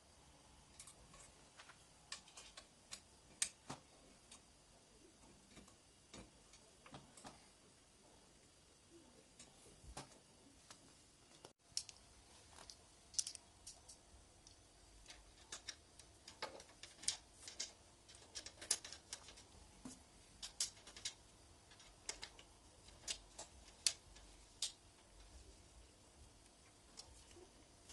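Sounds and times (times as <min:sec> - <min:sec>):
bicycle parts clicking and tapping: 0:11.7 - 0:12.0, 0:12.6 - 0:25.4.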